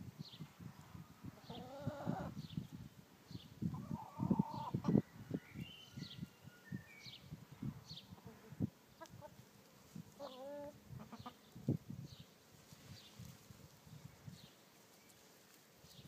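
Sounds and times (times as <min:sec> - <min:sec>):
small birds chirping: 0:00.2 - 0:16.0
hens clucking and squawking: 0:01.4 - 0:02.4, 0:03.6 - 0:05.3, 0:08.1 - 0:11.7.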